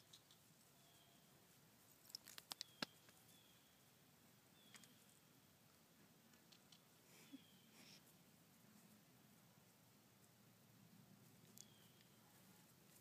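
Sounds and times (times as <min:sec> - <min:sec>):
faint clicks: 0:00.0 - 0:00.4, 0:04.7 - 0:05.0.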